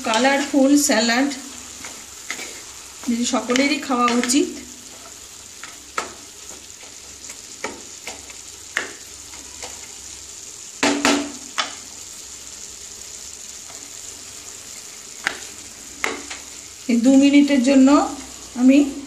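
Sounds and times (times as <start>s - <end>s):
spatula scraping and knocking pan: 0.0s - 10.0s, 10.8s - 12.0s, 15.1s - 17.4s
pan sizzling: 0.0s - 19.0s.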